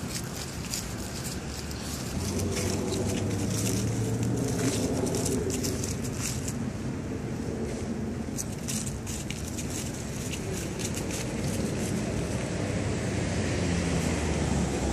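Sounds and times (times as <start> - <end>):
low rumble: 0.0 - 13.2
leaves crackling underfoot: 0.0 - 14.9.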